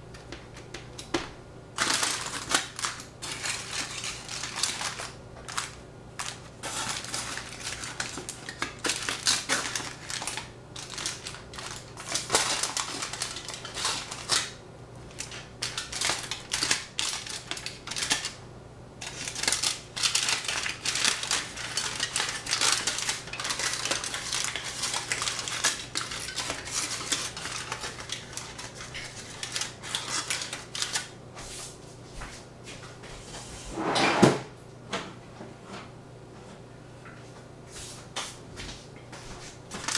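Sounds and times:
steady low hum: 0.0 - 29.8.

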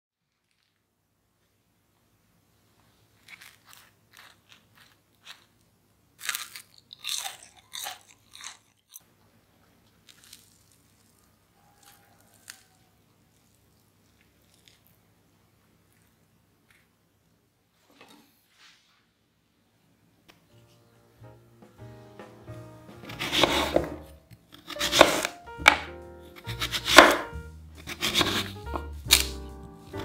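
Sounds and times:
crispy food crunching: 0.2 - 0.8, 3.1 - 9.1, 9.7 - 16.9.

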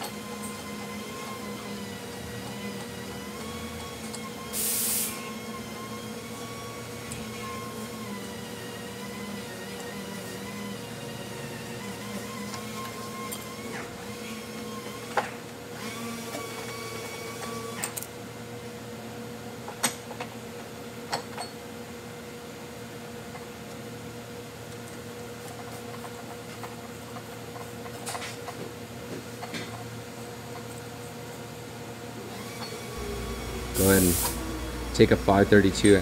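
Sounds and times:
steady background hum: 18.0 - 36.0.

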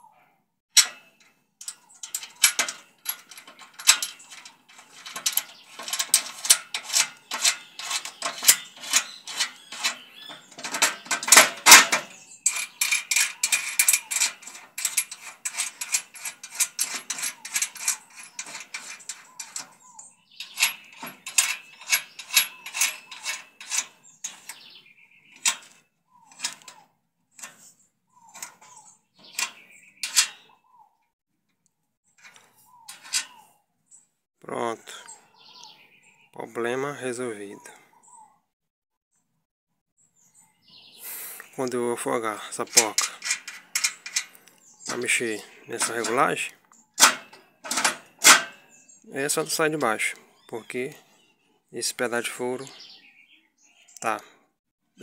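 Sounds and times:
nuts and washers rattling on bolts: 0.8 - 26.8, 27.4 - 27.7, 28.3 - 30.4, 32.2 - 33.3, 42.5 - 48.6.

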